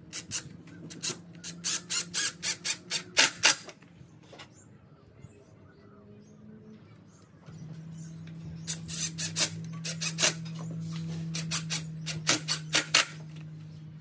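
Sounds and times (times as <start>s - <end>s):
cordless drill motor running: 0.1s - 3.7s, 8.6s - 13.4s.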